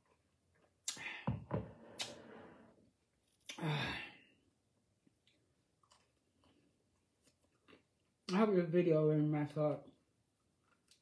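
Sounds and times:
woman sighing: 3.5s - 4.3s.

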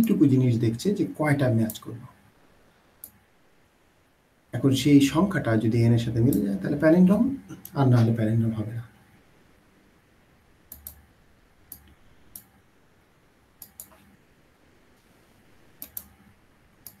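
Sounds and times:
computer mouse clicks: 3.0s - 3.2s, 10.7s - 11.1s, 11.7s - 12.6s, 13.6s - 14.2s, 15.8s - 17.0s.

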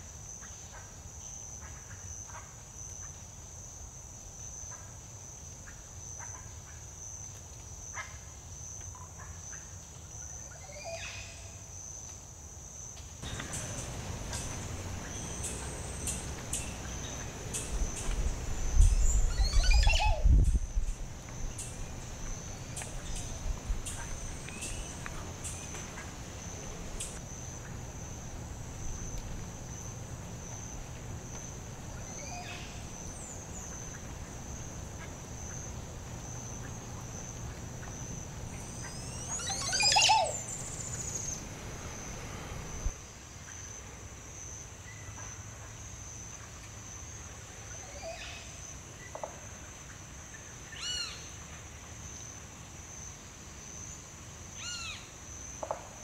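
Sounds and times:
loud gurgling bird song: 13.2s - 20.3s, 38.5s - 42.0s
bird calls: 13.2s - 27.8s, 31.3s - 35.8s, 36.4s - 42.9s
pulsing high insect drone: 13.2s - 43.0s.

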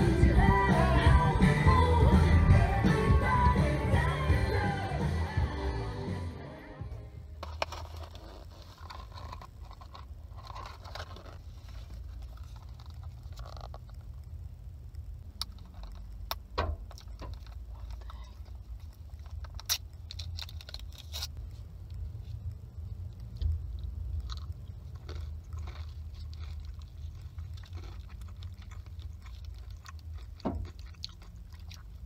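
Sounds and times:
steady low hum: 0.0s - 32.0s
paper wrapper rustling: 7.4s - 14.0s
sharp clicks and crackles: 7.4s - 32.0s.

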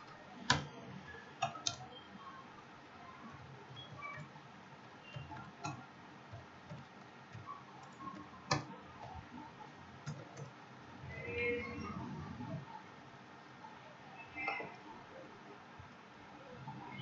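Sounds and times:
keyboard typing clicks: 0.0s - 0.8s, 1.4s - 2.0s, 3.7s - 10.6s.

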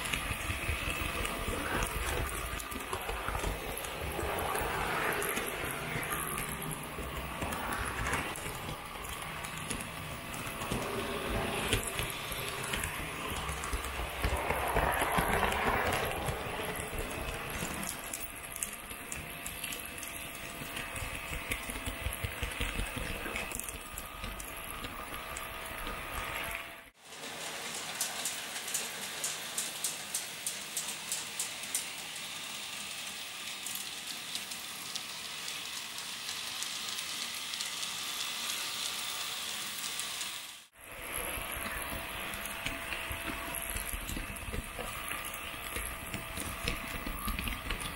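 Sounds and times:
rapid regular clicking: 0.0s - 26.4s
model train whirring: 0.0s - 47.9s.

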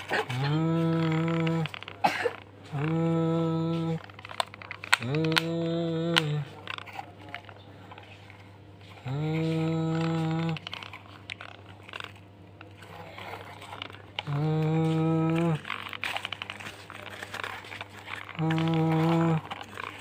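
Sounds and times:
toy bucket scraping soil: 9.0s - 20.0s.

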